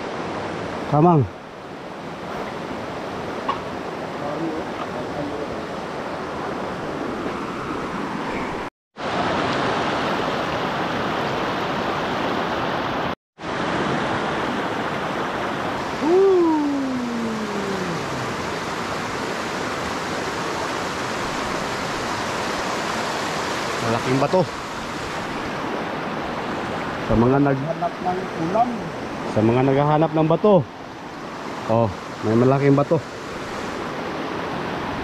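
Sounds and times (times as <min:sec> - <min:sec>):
flowing stream rushing: 0:00.0 - 0:35.0
drawn-out falling call: 0:15.8 - 0:18.8.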